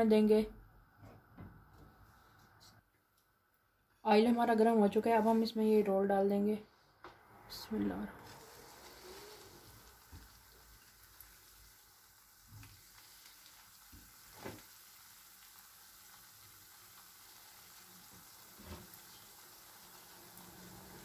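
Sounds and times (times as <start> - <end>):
bread sizzling in hot oil: 8.2 - 21.0.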